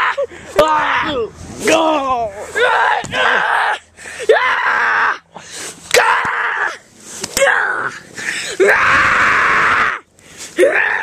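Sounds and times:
boy screaming: 0.0s - 5.2s, 5.9s - 6.8s, 7.4s - 8.0s, 8.6s - 10.0s.

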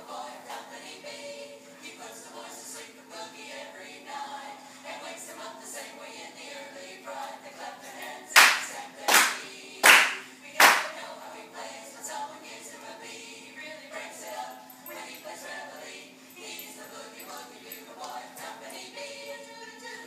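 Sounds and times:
faint music with singing: 0.0s - 20.0s
sharp hand claps: 8.4s - 11.0s.

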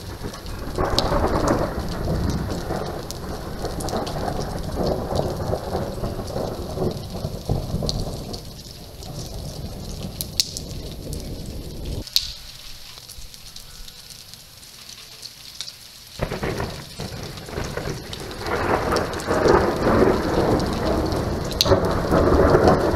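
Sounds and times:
thunder rumbling: 0.0s - 12.1s, 16.2s - 22.9s
falling rain: 0.0s - 22.9s
sharp drip ticks: 0.2s - 22.9s.

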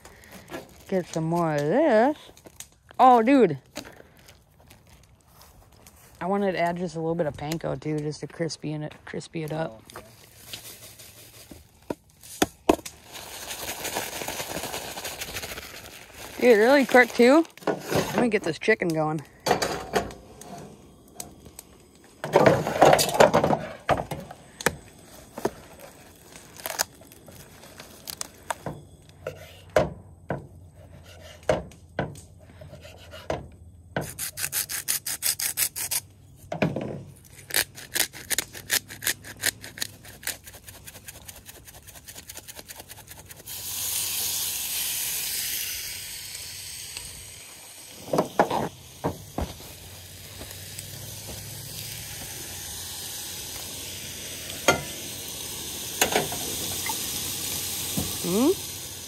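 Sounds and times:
rustling hiss: 43.3s - 59.0s.

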